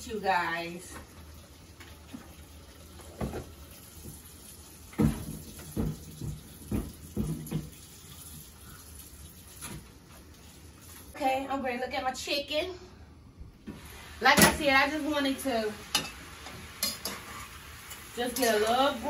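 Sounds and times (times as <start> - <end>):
water running in a sink: 0.0 - 11.3, 13.7 - 19.0
cutting board knocking on sink: 5.0 - 7.7.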